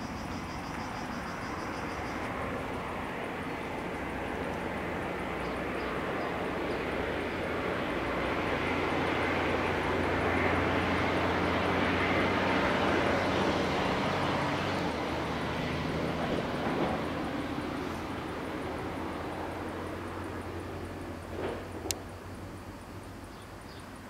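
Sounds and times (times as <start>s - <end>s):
vehicle engine passing by: 0.0s - 22.6s.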